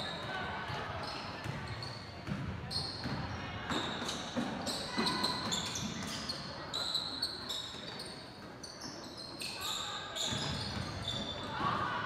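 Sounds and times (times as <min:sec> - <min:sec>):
sneaker squeaks: 0:01.0 - 0:11.9
basketball bouncing on gym floor: 0:01.4 - 0:03.2.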